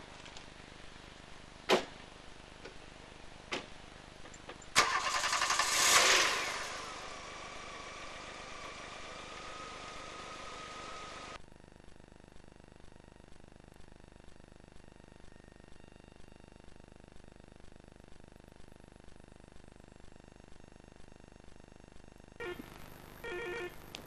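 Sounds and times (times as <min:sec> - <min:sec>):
faint engine whine: 0:00.0 - 0:11.4, 0:20.4 - 0:24.0
car engine starting and idling: 0:04.7 - 0:11.4.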